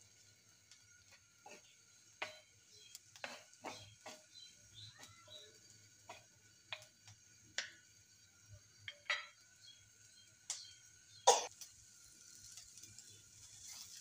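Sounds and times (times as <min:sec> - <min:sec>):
spatula knocking on pan: 0:01.4 - 0:07.8.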